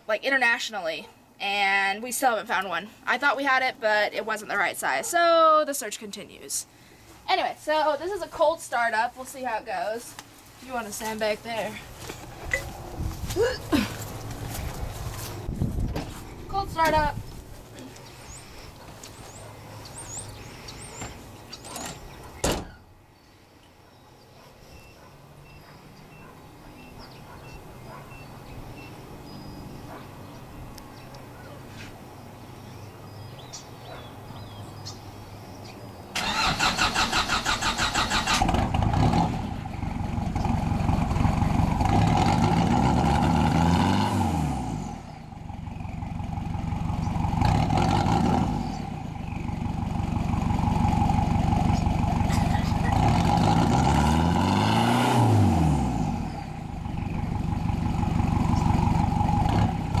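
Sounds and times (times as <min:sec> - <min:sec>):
engine starter cranking: 0:36.2 - 0:39.3
diesel engine revving: 0:36.2 - 1:00.0.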